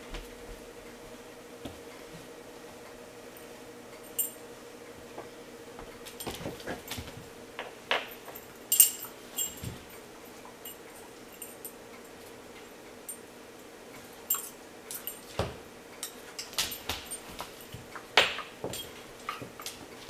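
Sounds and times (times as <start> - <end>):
small metallic clinks: 4.0 - 4.4, 8.2 - 10.0, 10.6 - 11.8, 14.2 - 15.3.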